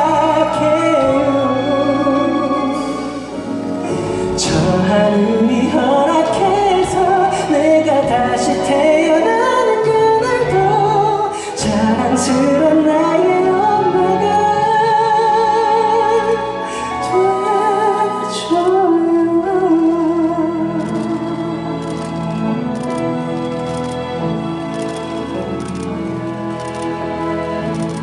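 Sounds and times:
man singing a slow ballad: 0:00.0 - 0:16.2
orchestra with strings: 0:00.0 - 0:28.0.

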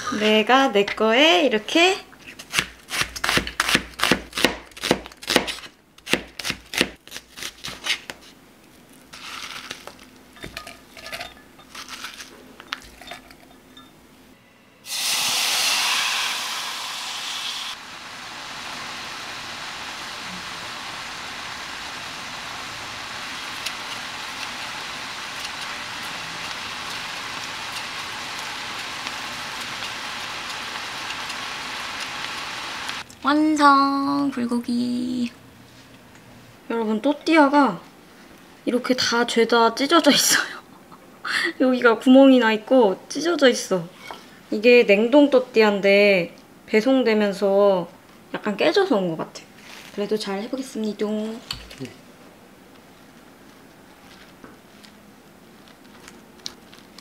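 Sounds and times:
knife chopping on cutting board: 0:02.4 - 0:08.1
beef sizzling in frying pan: 0:14.9 - 0:33.1.

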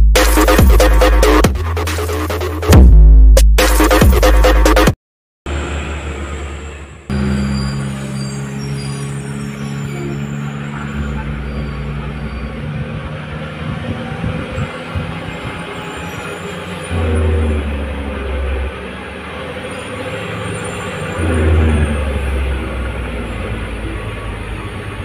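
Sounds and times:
diesel truck engine droning: 0:05.5 - 0:25.0.

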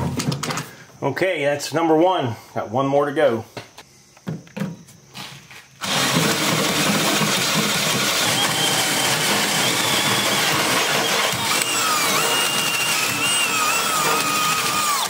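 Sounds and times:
cordless drill boring through steel: 0:05.8 - 0:15.0
drill bit squealing on steel: 0:08.2 - 0:15.0.

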